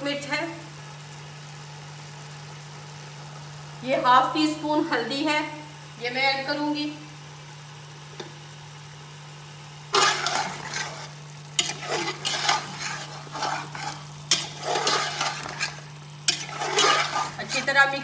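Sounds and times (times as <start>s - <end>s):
meat frying in hot oil: 0.0s - 18.0s
spoon stirring and scraping pot: 9.9s - 18.0s.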